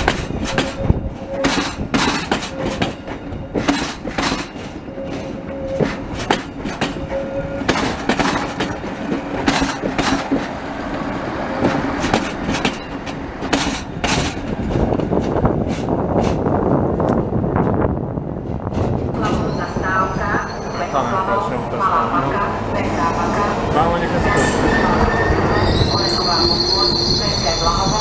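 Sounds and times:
train wheels clacking over rail joints: 0.0 - 10.6, 11.6 - 16.5
low train rumble: 0.0 - 28.0.

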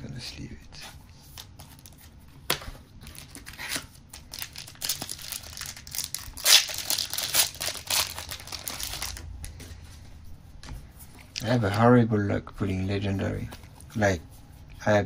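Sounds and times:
plastic sleeve crinkling: 3.0 - 9.3.

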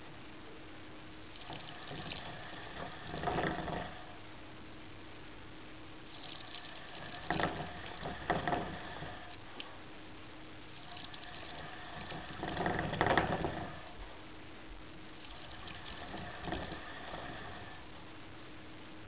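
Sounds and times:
plastic hamster wheel rattling: 1.3 - 4.0, 6.1 - 9.3, 10.7 - 14.0, 15.2 - 17.7.

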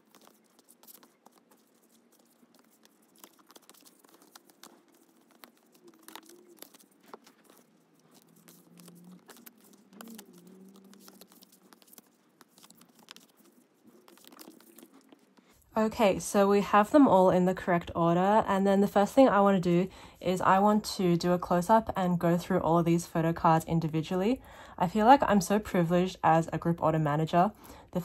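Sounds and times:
cards clicking and sliding: 0.1 - 15.1.

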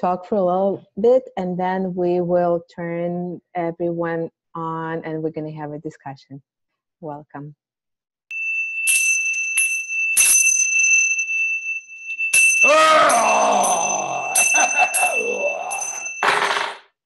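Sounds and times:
hand cymbals ringing: 8.3 - 16.3
man's long vocalisation: 12.6 - 16.1.

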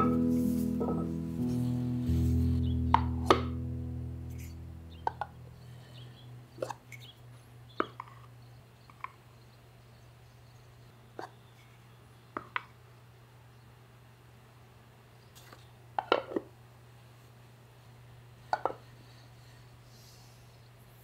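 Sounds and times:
background music: 0.0 - 6.7.

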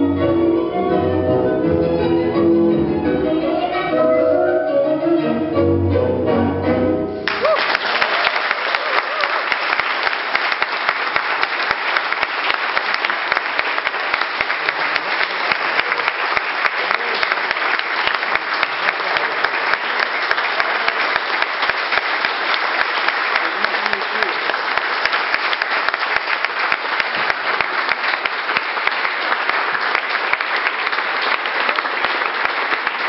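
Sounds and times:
small audience applauding: 7.2 - 33.0.

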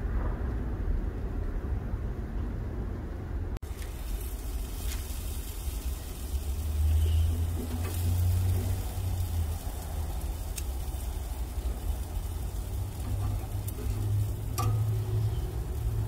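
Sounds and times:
low rumble: 0.0 - 4.8
chicken sizzling on grill: 3.6 - 16.0.

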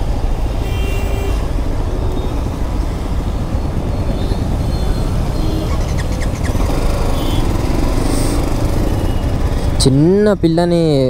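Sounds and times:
wind rumbling on microphone: 0.0 - 9.8
motorcycle engine running: 2.4 - 10.2.

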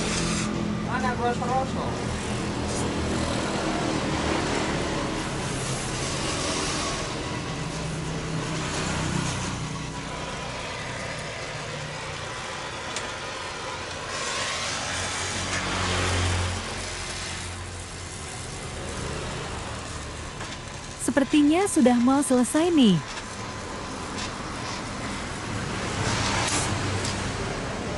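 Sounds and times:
gas torch hissing: 0.0 - 27.9.

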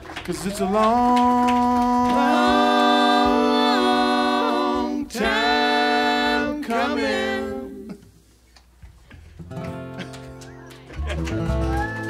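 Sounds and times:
voices singing close harmony: 0.7 - 8.1.

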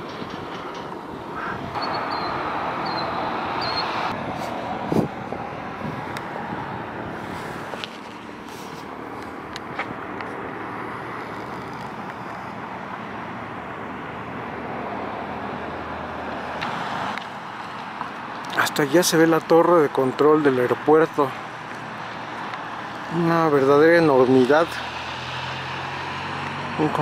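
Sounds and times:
road traffic passing: 0.0 - 27.0.

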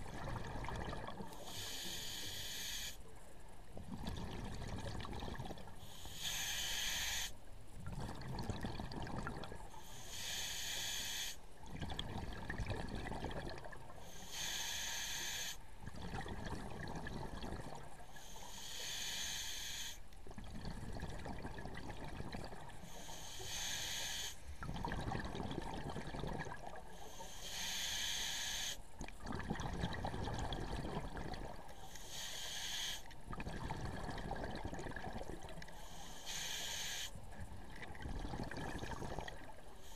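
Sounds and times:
bubbling exhaled air: 0.0 - 2.8, 7.8 - 19.4, 20.3 - 39.9
regulator hissing inhalation: 1.4 - 3.0, 5.9 - 7.4, 9.8 - 11.4, 14.0 - 15.6, 18.2 - 20.0, 22.8 - 24.5, 27.0 - 28.8, 31.8 - 33.1, 35.8 - 37.2.

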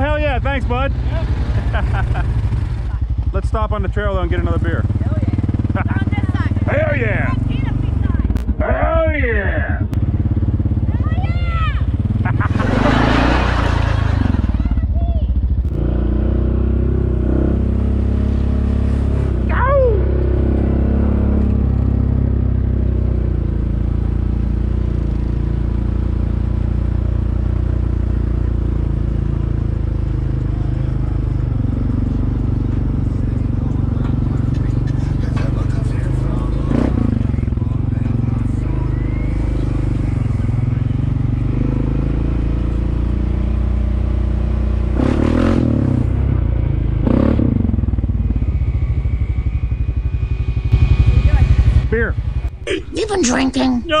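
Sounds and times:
single-cylinder engine running: 0.0 - 8.6, 9.9 - 15.8
quad engine running: 0.0 - 8.9, 9.5 - 54.0.

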